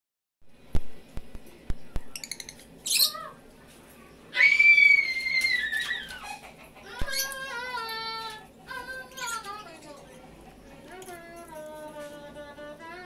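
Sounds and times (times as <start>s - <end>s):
lovebirds chirping and calling: 1.8s - 3.4s, 4.0s - 11.6s.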